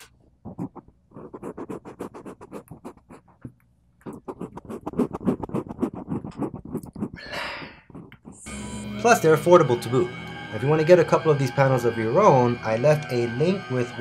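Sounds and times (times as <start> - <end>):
fingers scratching on microphone: 0.0 - 8.6.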